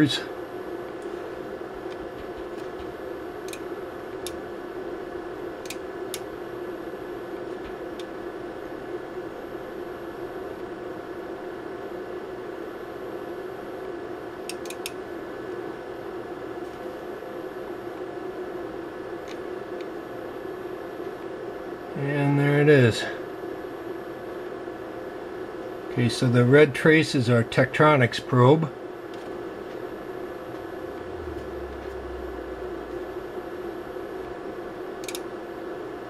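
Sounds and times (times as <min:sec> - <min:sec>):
cooling fans humming: 0:00.0 - 0:36.0.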